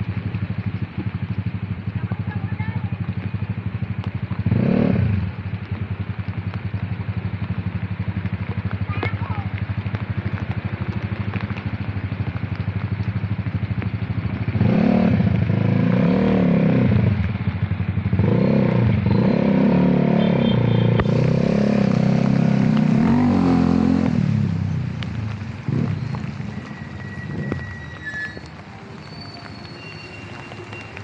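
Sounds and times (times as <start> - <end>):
motorcycle engine revving: 3.1 - 6.4, 13.8 - 26.4.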